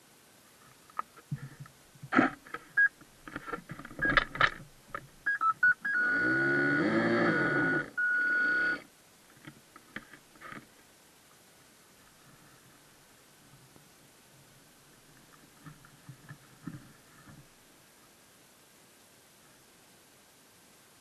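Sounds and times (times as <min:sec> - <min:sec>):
clicks and knocks of handling: 0:00.8 - 0:05.1, 0:09.3 - 0:10.8
short electronic beeps: 0:05.2 - 0:08.8
high electronic whine: 0:05.3 - 0:08.9.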